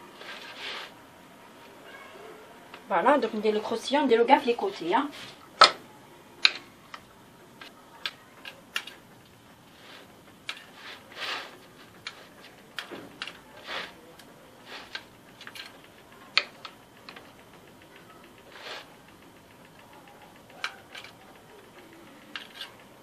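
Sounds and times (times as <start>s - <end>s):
crumbs rustling and scraping: 0.1s - 1.0s, 9.7s - 14.0s
small clicks and taps: 6.4s - 9.4s, 11.8s - 23.0s.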